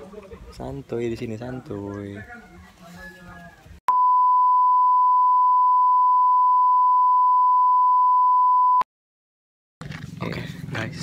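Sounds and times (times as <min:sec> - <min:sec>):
long electronic beep: 0:03.9 - 0:08.8.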